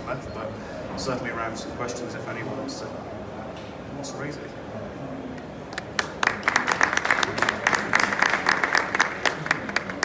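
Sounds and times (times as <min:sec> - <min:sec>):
audience applauding: 0:05.8 - 0:10.0.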